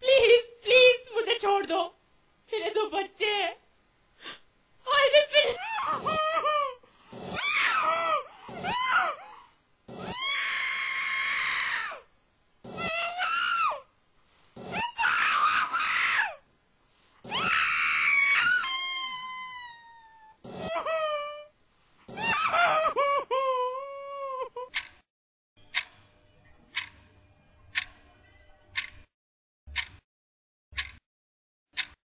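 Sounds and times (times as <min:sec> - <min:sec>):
woman screaming: 0:04.9 - 0:06.8, 0:07.4 - 0:09.2, 0:10.0 - 0:12.0, 0:12.7 - 0:13.8, 0:14.7 - 0:16.4, 0:17.3 - 0:21.5, 0:22.1 - 0:24.5.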